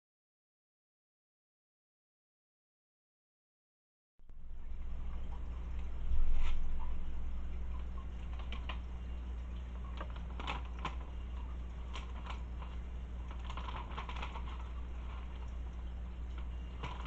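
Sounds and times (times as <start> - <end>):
steady low hum: 4.2 - 17.0.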